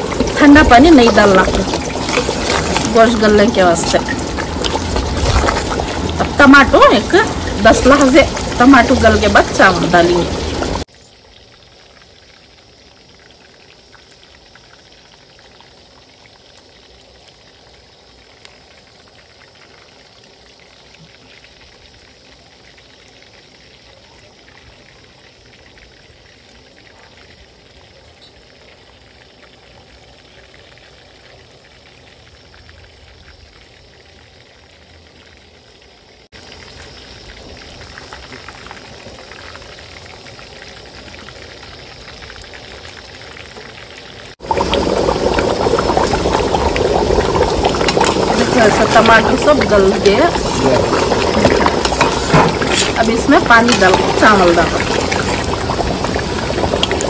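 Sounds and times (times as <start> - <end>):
chicken deep-frying in oil: 0.0 - 57.0.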